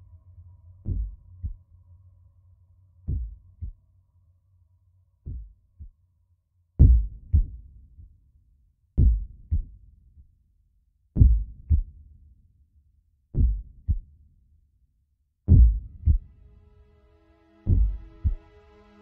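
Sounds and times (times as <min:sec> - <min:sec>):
faint low drone: 0:00.0 - 0:06.2, 0:15.5 - 0:19.0
deep double thumps: 0:15.5 - 0:16.2.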